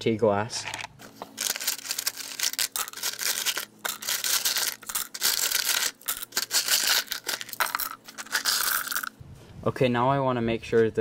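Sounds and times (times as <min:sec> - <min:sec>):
glass shards clinking: 0:01.4 - 0:09.2.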